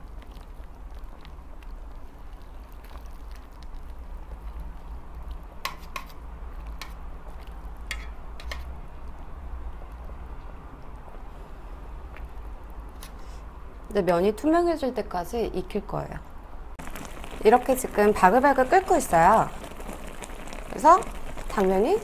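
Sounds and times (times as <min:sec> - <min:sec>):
tongs stirring noodles in pot: 0:00.1 - 0:08.8, 0:17.0 - 0:22.0.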